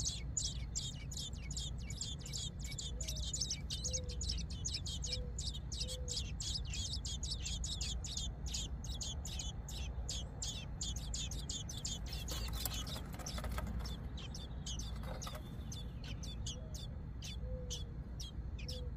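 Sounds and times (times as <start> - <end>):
nestlings cheeping: 0.0 - 18.9.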